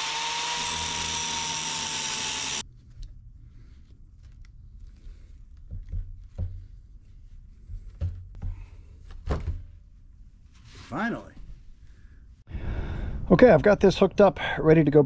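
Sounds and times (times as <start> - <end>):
power tool cutting metal: 0.0 - 2.6.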